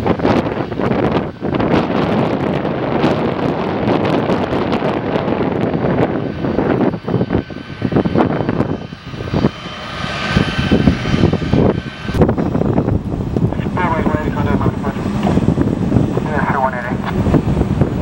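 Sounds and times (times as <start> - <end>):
jet engine whine: 0.0 - 18.0
wind buffeting microphone: 0.0 - 18.0.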